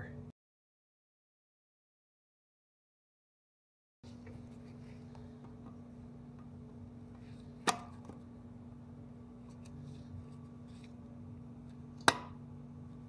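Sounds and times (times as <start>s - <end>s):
steady low hum: 0.0s - 0.3s, 4.1s - 13.0s.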